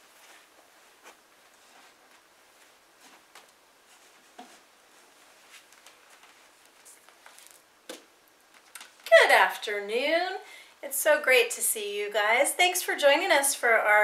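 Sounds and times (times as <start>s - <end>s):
faint rustling: 0.0s - 9.2s.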